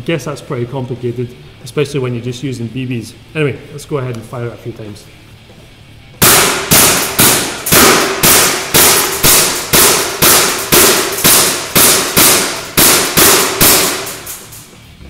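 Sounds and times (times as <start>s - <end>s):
airsoft pistol shots: 6.2s - 14.6s.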